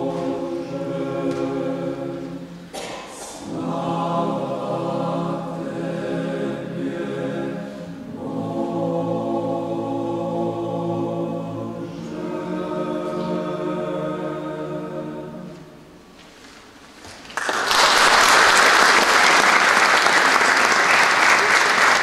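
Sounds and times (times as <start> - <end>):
choir singing: 0.0 - 16.1
audience applause: 17.2 - 22.0.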